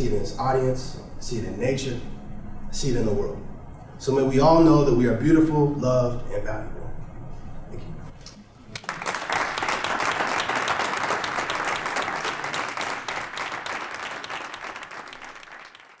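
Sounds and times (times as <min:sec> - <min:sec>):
audience applauding: 0:08.7 - 0:16.0.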